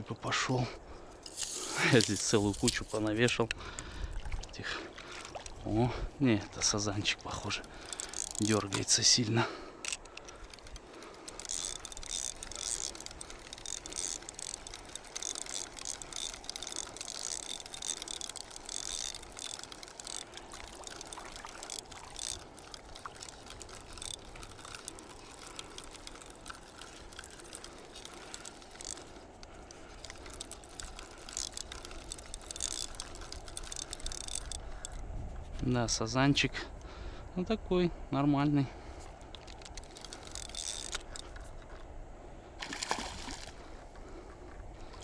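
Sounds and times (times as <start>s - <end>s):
fishing reel clicking: 1.2s - 4.1s, 6.8s - 35.1s, 39.1s - 41.8s.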